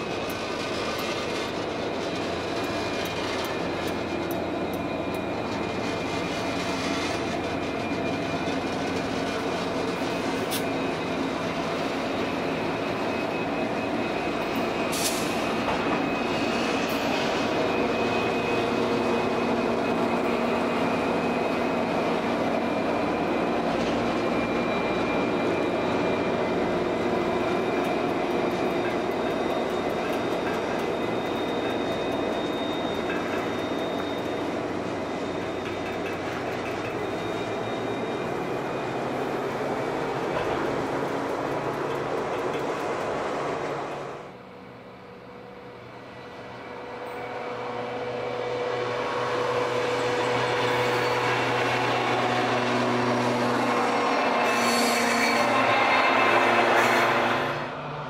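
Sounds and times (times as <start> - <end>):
diesel locomotive engines droning: 0.0 - 58.0
high engine whine: 0.0 - 58.0
wheels clicking on rail: 26.6 - 37.6, 40.1 - 44.2.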